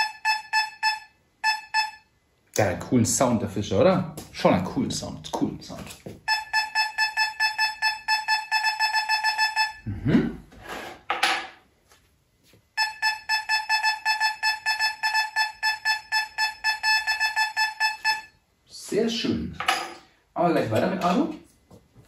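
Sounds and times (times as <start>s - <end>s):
metal detector beeping: 0.0s - 2.1s, 6.3s - 9.8s, 12.8s - 18.4s.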